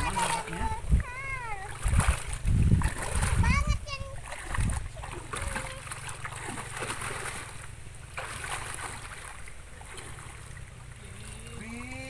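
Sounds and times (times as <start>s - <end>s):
wind rumbling on microphone: 0.0s - 5.8s
water sloshing and splashing: 0.0s - 12.0s.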